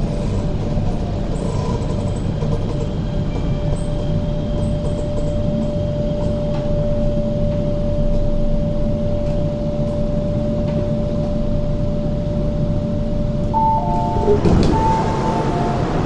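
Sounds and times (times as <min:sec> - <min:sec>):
train wheels rumbling on track: 0:00.0 - 0:08.3, 0:13.5 - 0:16.0
constant train hum: 0:00.0 - 0:16.0.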